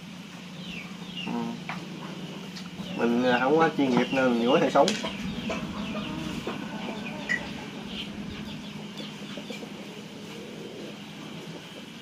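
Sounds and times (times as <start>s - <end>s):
faint bird chirps: 2.5s - 11.8s.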